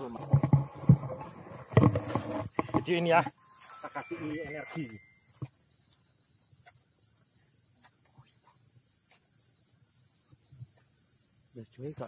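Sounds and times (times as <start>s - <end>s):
faint clicks and rustles: 0.0s - 3.0s
insects chirring: 0.0s - 12.0s.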